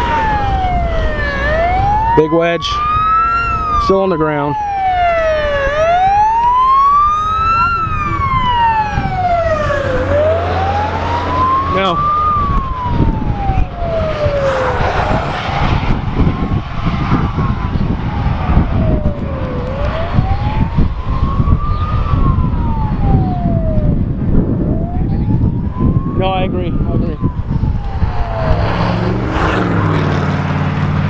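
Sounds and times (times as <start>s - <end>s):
fire engine siren wailing: 0.0s - 31.0s
heavy low rumble: 7.8s - 29.8s.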